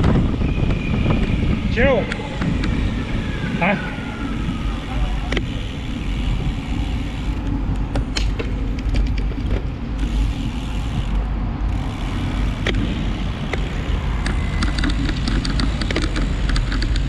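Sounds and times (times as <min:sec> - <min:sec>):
wind rumbling on microphone: 0:00.0 - 0:17.0
sharp clicks and knocks: 0:02.0 - 0:02.8, 0:07.4 - 0:09.7, 0:12.5 - 0:17.0.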